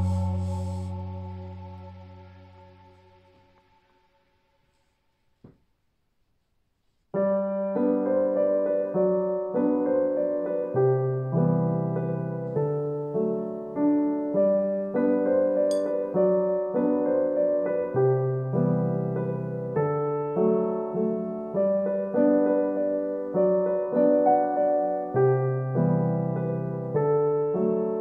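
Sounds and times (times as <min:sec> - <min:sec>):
gentle piano music: 0:00.0 - 0:03.7, 0:07.2 - 0:28.0.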